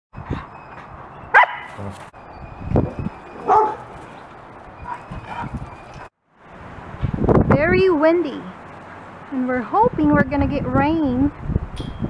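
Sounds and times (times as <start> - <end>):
dogs barking: 1.3 - 1.8, 3.2 - 6.1.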